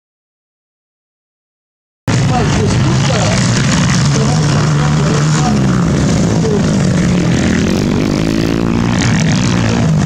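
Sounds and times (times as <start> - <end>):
dirt bike engines revving: 2.1 - 10.0.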